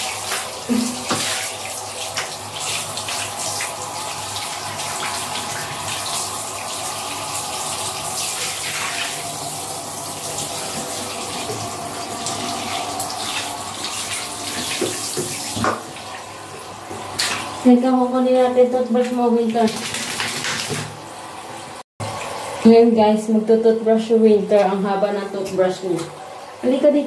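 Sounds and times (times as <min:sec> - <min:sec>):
shower head spraying water: 0:00.0 - 0:16.3
water splashing: 0:00.0 - 0:22.7.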